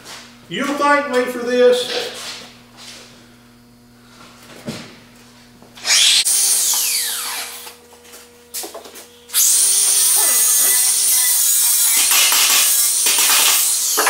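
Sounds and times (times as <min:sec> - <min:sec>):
angle grinder whine: 0:05.6 - 0:14.0.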